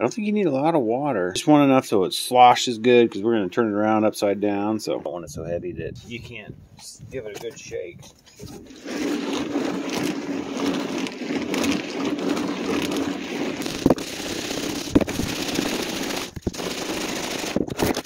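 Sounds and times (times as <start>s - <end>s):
screws rattling in metal tank: 13.6s - 18.0s.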